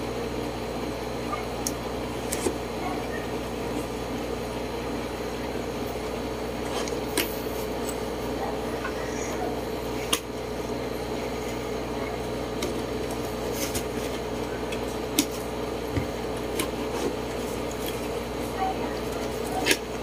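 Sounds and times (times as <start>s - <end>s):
room hum: 0.0s - 20.0s.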